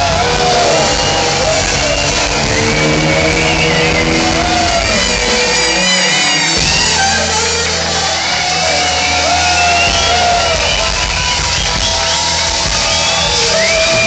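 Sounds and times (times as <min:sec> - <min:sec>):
rock band playing live: 0:00.0 - 0:14.0.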